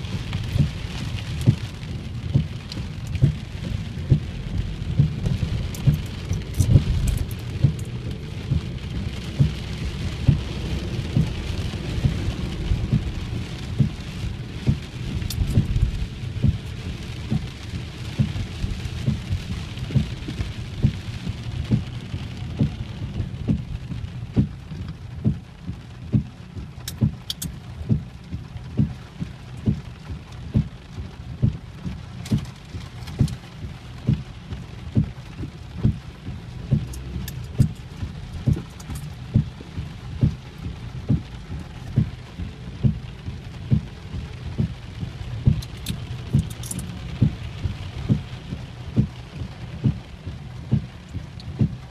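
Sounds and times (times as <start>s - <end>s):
heavy rain on a car roof: 0.0s - 51.9s
low thumps: 0.2s - 17.5s.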